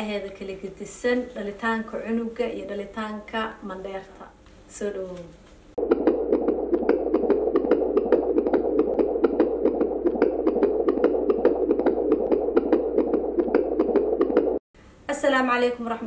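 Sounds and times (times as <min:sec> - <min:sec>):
fetal heartbeat on doppler monitor: 0:05.8 - 0:14.6.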